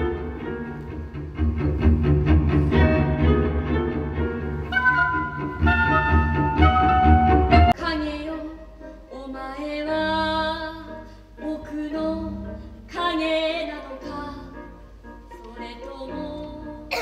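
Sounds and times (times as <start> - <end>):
soft low accompaniment: 0.0 - 17.0
woman singing a melody: 7.8 - 14.5.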